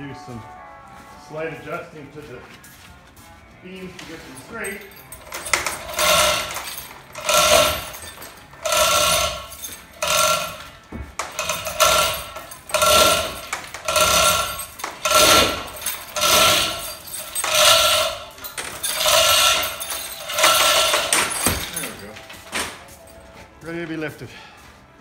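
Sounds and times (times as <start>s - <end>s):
hoist chain rattling: 4.1s - 22.9s.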